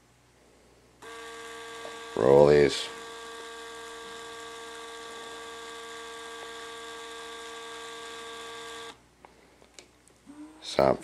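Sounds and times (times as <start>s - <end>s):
roller shade motor whine: 0.8s - 9.1s.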